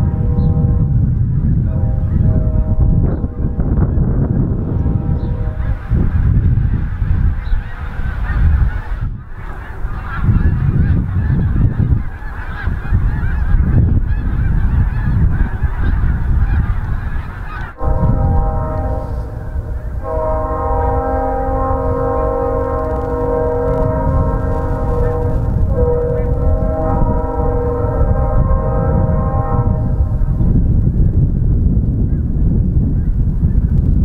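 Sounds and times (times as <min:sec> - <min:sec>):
locomotive air horn: 0:00.0 - 0:06.1, 0:17.6 - 0:30.4
freight train approaching: 0:00.0 - 0:11.2, 0:17.3 - 0:31.1
heavy low rumble: 0:00.0 - 0:34.0
geese honking: 0:01.6 - 0:29.9.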